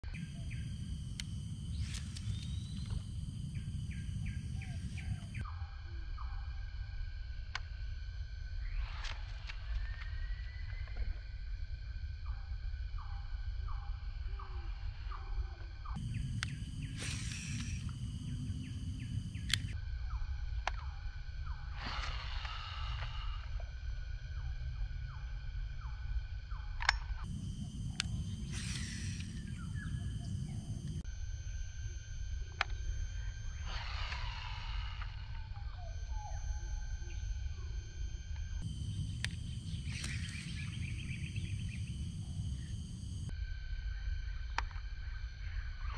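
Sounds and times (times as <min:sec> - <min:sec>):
steady low rumble: 0:00.0 - 0:45.8
high insect drone: 0:00.0 - 0:45.9
fishing reel spool spinning: 0:00.1 - 0:05.4, 0:16.0 - 0:19.8, 0:27.2 - 0:43.3
repeated bird calls: 0:00.1 - 0:06.6, 0:12.2 - 0:23.4, 0:24.4 - 0:31.0, 0:33.2 - 0:38.0, 0:38.6 - 0:43.3
sharp clicks: 0:00.2 - 0:05.4, 0:16.0 - 0:19.8, 0:26.8 - 0:31.0, 0:38.3 - 0:43.3
sharp click: 0:16.0 - 0:19.8.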